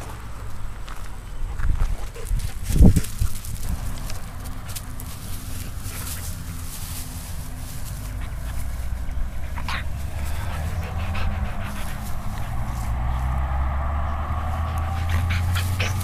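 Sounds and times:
low rumble: 0.0 - 16.0
rustling in grass: 0.8 - 16.0
dog making soft vocal sounds: 7.7 - 13.1, 14.7 - 16.0.

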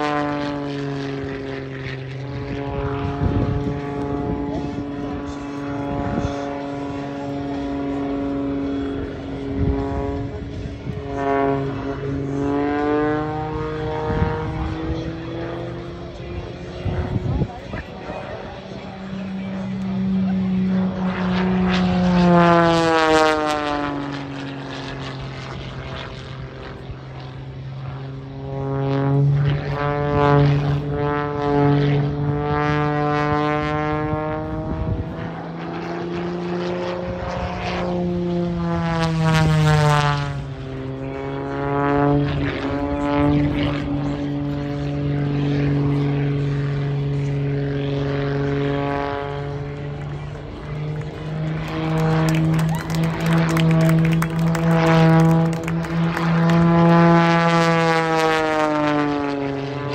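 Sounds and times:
propeller plane engine: 0.0 - 59.9.

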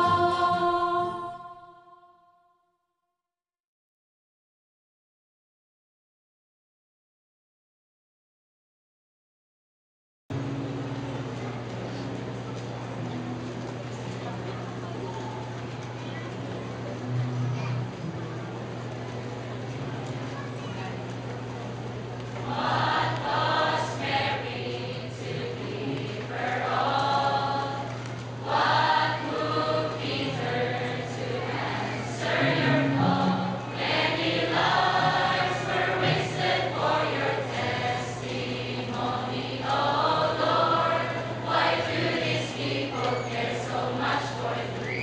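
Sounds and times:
mixed choir singing: 0.0 - 2.3, 22.4 - 45.0.

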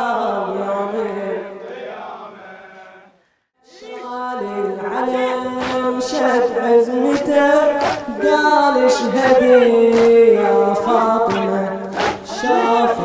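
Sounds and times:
men chanting in chorus: 0.0 - 13.0
sharp slaps: 5.5 - 8.4, 9.0 - 12.6.

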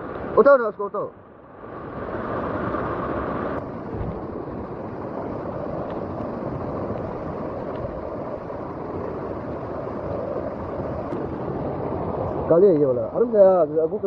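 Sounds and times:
river rushing over boulders: 0.0 - 14.0.

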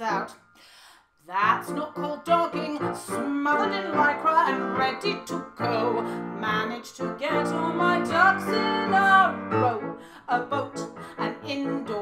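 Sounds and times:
woman singing: 0.0 - 0.4, 1.3 - 12.0
grand piano accompaniment: 1.4 - 12.0.

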